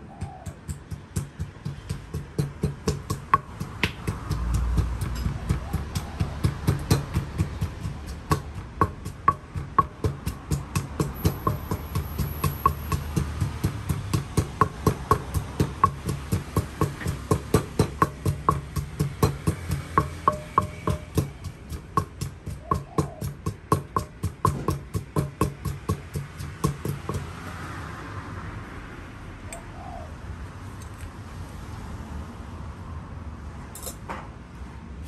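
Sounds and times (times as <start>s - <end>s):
wooden pestle pounding in mortar: 0.0s - 27.6s.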